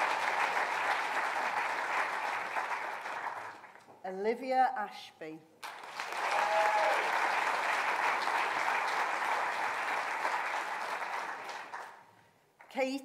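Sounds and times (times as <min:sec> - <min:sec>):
audience applause: 0:00.0 - 0:03.8, 0:05.6 - 0:12.0.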